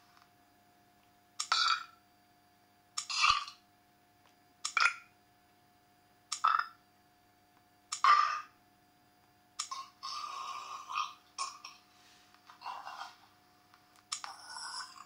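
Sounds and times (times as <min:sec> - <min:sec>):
faint steady hum: 0:00.0 - 0:15.0
recorded burps from speaker: 0:01.5 - 0:02.0, 0:03.1 - 0:03.6, 0:06.5 - 0:06.8, 0:09.7 - 0:11.9.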